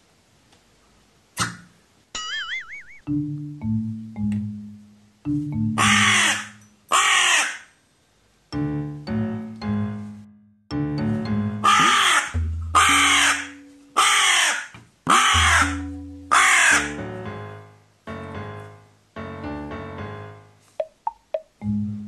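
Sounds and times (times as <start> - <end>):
soft background music: 3.1 - 6.8, 8.5 - 14.3, 15.2 - 22.0
crow cawing: 5.8 - 7.7, 11.6 - 17.0.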